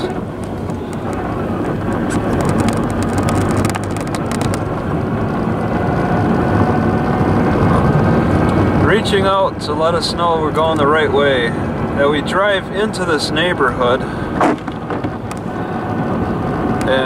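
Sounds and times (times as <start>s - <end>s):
car engine and tyres droning: 0.0s - 17.0s
raindrops ticking on windshield: 0.3s - 4.8s.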